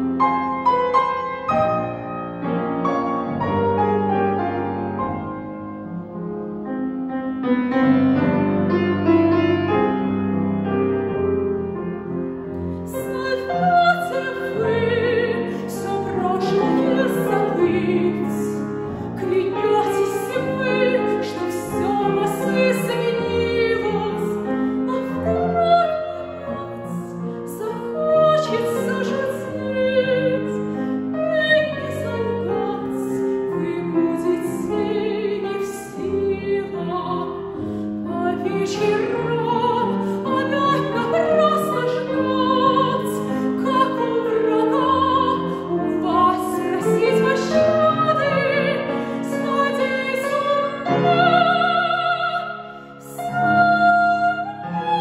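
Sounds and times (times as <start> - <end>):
grand piano: 0.0 - 55.0
woman singing with vibrato: 12.9 - 55.0.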